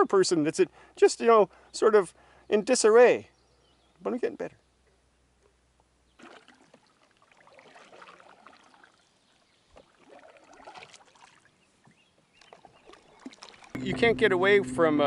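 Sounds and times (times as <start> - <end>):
canoe paddle strokes in water: 6.1 - 14.2
water dripping off paddle: 6.2 - 13.8.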